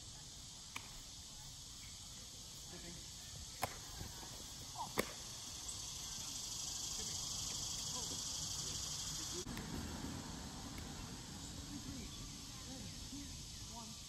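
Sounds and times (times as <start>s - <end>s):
high-pitched insect drone: 0.0s - 14.0s
flying disc caught with slap: 3.6s - 4.2s, 4.8s - 5.3s.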